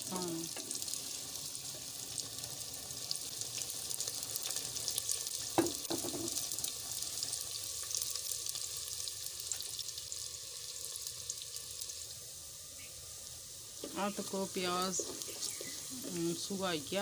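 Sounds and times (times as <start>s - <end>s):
onions sizzling and crackling: 0.0s - 17.0s.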